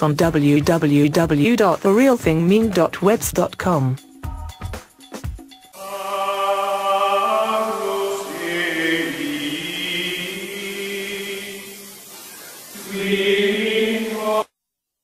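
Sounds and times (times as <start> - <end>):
choir-like voices chanting: 5.8 - 14.5.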